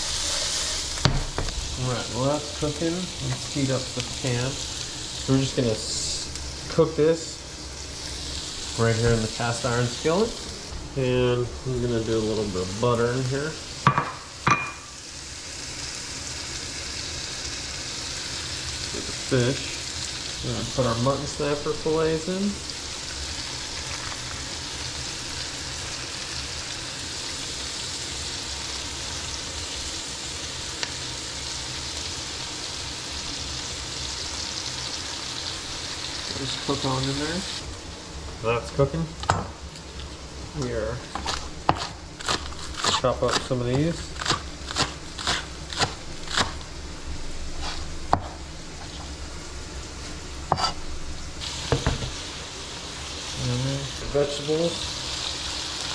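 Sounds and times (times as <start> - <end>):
fish sizzling in a pan: 0.0 - 38.8, 39.6 - 55.9
knife chopping green onions: 41.1 - 46.6, 50.5 - 50.8.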